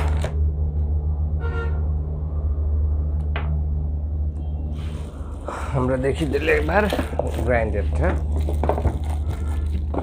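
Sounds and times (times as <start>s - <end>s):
steady low hum: 0.0s - 10.0s
short pitched tone: 1.2s - 2.6s, 4.0s - 5.1s
cardboard packaging rustling: 6.0s - 10.0s.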